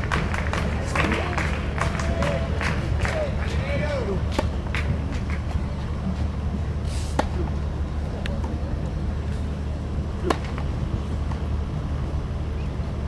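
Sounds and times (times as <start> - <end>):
tennis balls struck with rackets: 0.0 - 6.3, 7.1 - 7.6, 10.1 - 11.5
steady low hum: 0.0 - 13.0.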